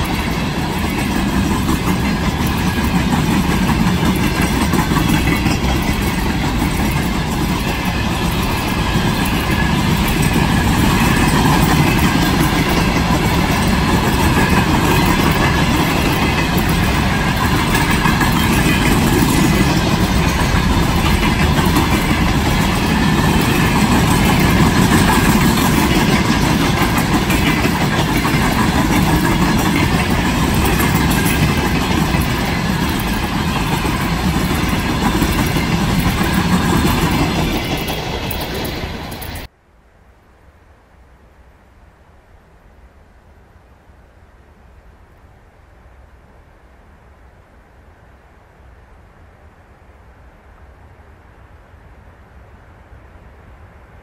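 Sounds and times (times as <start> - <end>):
diesel locomotive engine rumble: 0.0 - 39.5
wagons rattling: 0.0 - 39.5.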